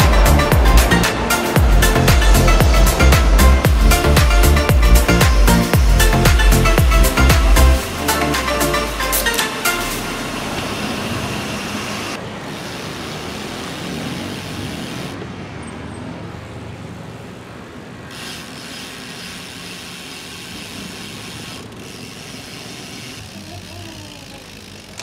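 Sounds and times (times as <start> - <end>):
passing cars rushing: 0.0 - 18.2.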